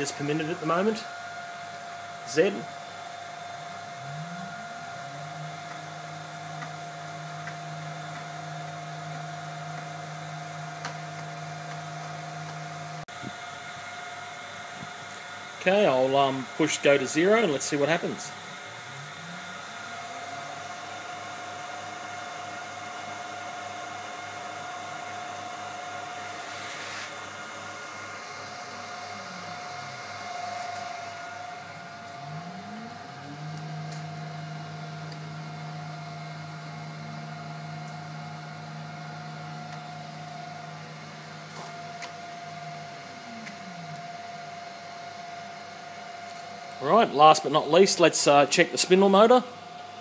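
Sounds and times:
stepper motors whining: 0:00.0 - 0:13.0, 0:15.0 - 0:23.1, 0:25.0 - 0:44.6
steady high hum: 0:00.0 - 0:50.0.

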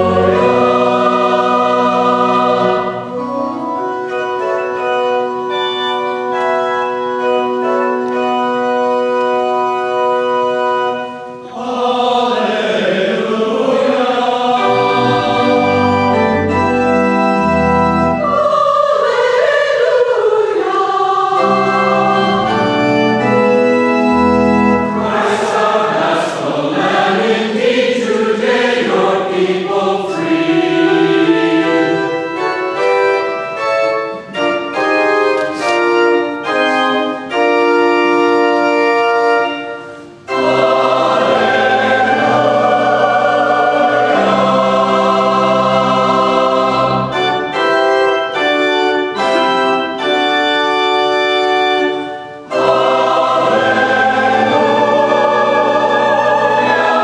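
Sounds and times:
mixed choir singing: 0:00.0 - 0:03.9, 0:10.9 - 0:16.8, 0:18.0 - 0:23.3, 0:24.7 - 0:33.4, 0:39.9 - 0:47.8, 0:51.8 - 0:57.0
keyboard chords: 0:00.0 - 0:57.0.

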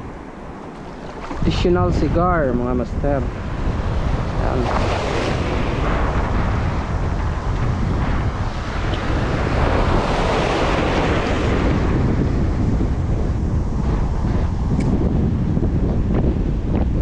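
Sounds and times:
wind buffeting microphone: 0:00.0 - 0:17.0
small waves breaking: 0:00.1 - 0:01.8.

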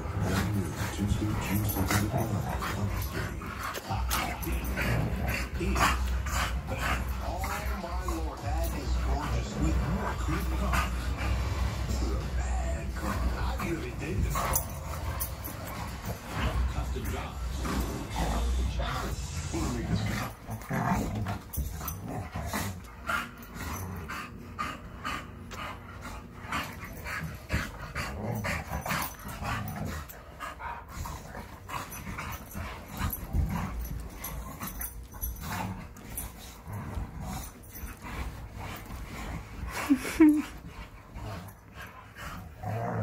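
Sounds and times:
dogs growling: 0:00.0 - 0:43.0
scuffling of bodies and paws: 0:25.8 - 0:43.0.

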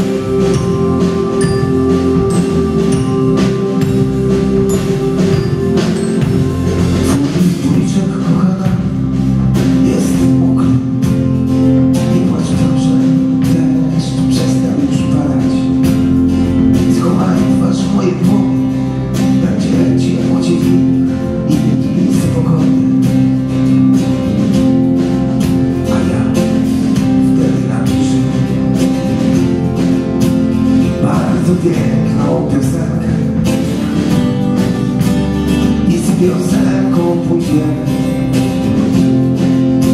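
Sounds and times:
percussion beat: 0:00.0 - 0:18.6
strummed acoustic guitar: 0:00.0 - 0:39.9.

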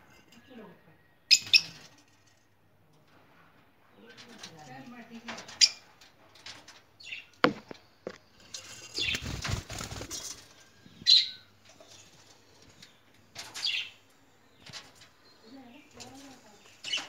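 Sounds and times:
birds chirping: 0:07.0 - 0:17.0.

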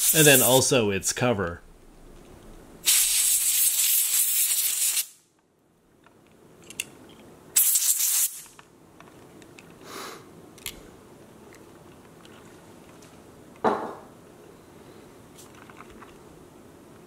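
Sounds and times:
compressed air hissing: 0:00.0 - 0:00.7, 0:02.8 - 0:05.2, 0:07.6 - 0:08.4
small handling clicks: 0:10.6 - 0:10.8.

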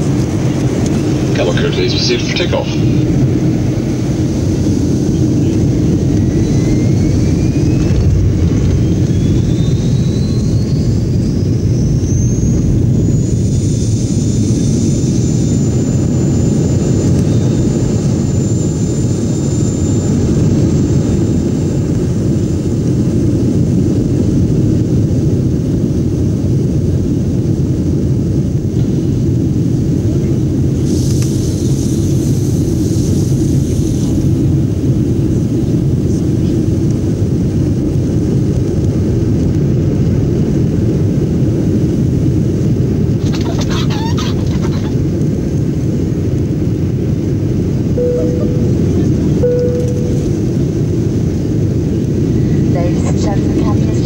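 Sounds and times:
jet engines rumbling and whining: 0:00.0 - 0:54.0
hiss: 0:30.8 - 0:34.1.

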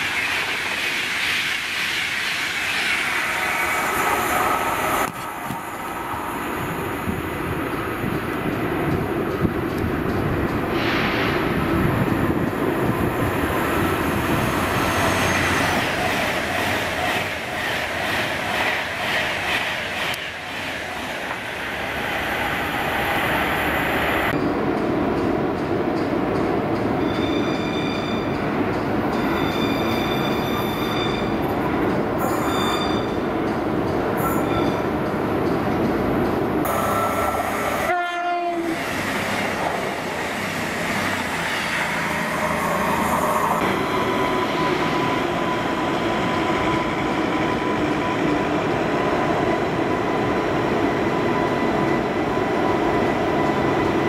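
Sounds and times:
electric train passing at speed: 0:00.0 - 0:54.0
train running noise: 0:00.0 - 0:54.0
high-pitched wheel squeal: 0:14.3 - 0:16.0, 0:29.2 - 0:31.4, 0:32.2 - 0:33.2, 0:34.2 - 0:34.9.

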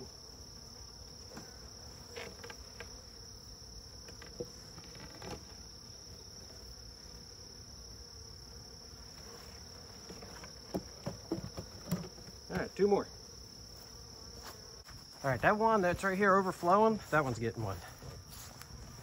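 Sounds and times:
crickets chirping: 0:00.0 - 0:19.0
wooden boxes knocking: 0:10.2 - 0:12.7.

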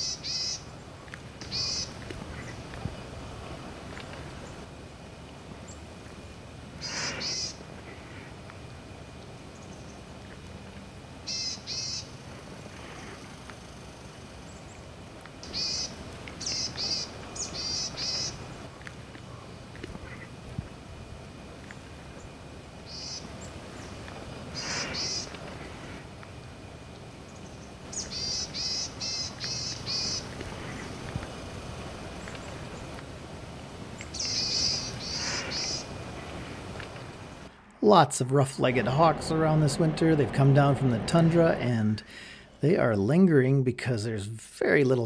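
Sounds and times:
chickadees calling: 0:00.0 - 0:03.2, 0:06.8 - 0:08.5, 0:11.2 - 0:20.4, 0:21.5 - 0:38.0.

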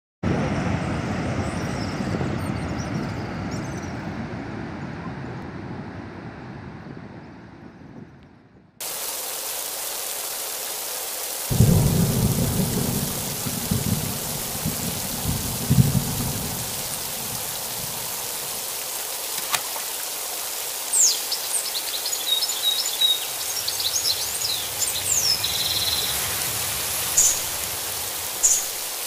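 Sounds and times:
water rushing down spillway: 0:08.8 - 0:29.0.

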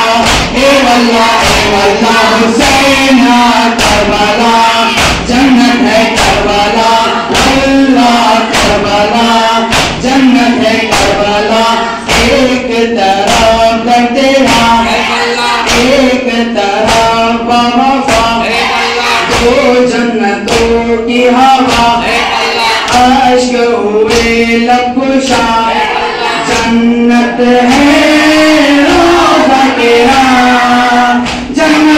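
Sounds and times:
men chanting a lament: 0:00.0 - 0:31.9
chest-beating slaps: 0:00.1 - 0:03.0, 0:03.7 - 0:04.3, 0:04.9 - 0:07.8, 0:08.4 - 0:09.1, 0:09.7 - 0:10.3, 0:12.1 - 0:12.4, 0:14.4 - 0:16.0, 0:18.1 - 0:19.7, 0:20.4 - 0:20.8, 0:21.6 - 0:22.2, 0:22.8 - 0:23.2, 0:26.4 - 0:26.8, 0:31.2 - 0:31.5.

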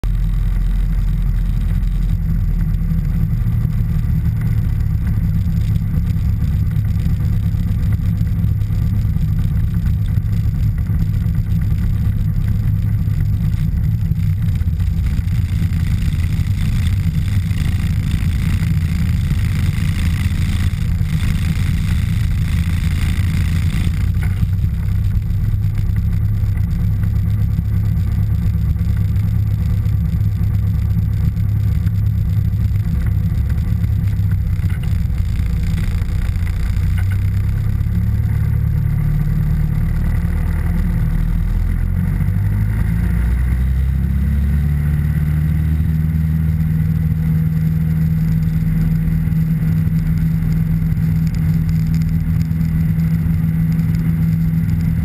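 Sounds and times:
aircraft engine and propeller drone: 0:00.1 - 0:42.6.

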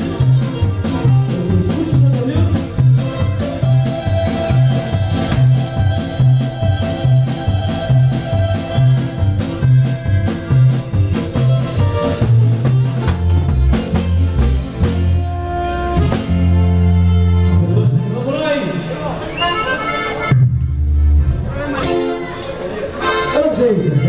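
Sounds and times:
drum beat: 0:00.0 - 0:15.4
bass alternating two notes: 0:00.0 - 0:24.0.

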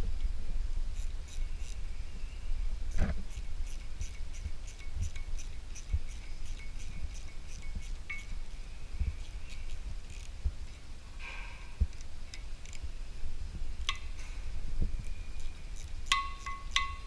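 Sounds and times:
ratchet tool clicking: 0:01.0 - 0:01.8, 0:03.0 - 0:08.4, 0:09.2 - 0:10.8, 0:11.9 - 0:12.8, 0:15.0 - 0:17.0.

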